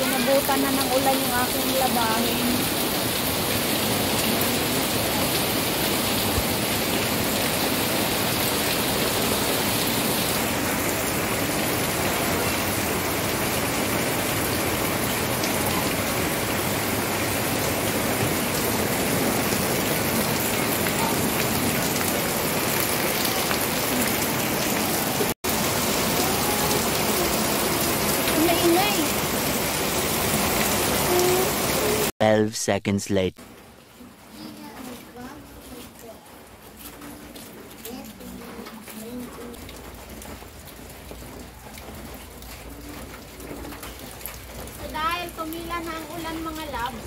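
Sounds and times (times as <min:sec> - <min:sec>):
heavy rain pouring: 0:00.0 - 0:32.2, 0:33.2 - 0:47.0.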